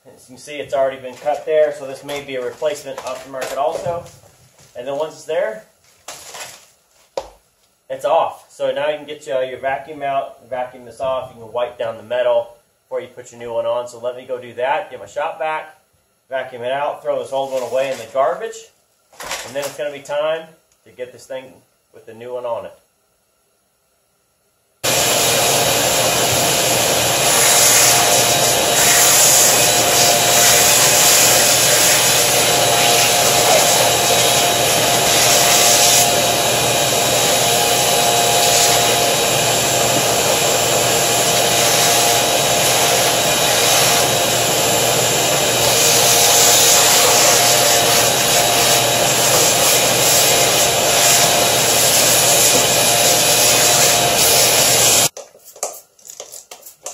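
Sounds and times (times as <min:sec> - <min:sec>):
shop vacuum running: 0:24.8 - 0:55.1.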